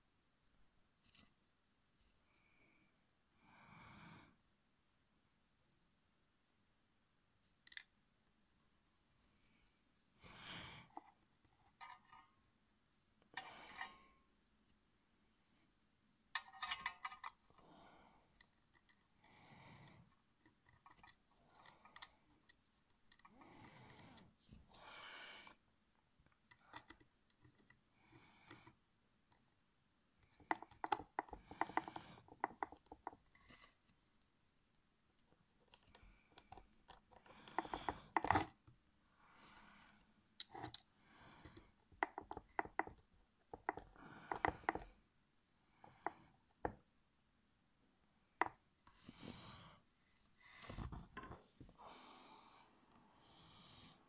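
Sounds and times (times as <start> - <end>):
screwdriver clicking and scraping: 16.4 - 17.4.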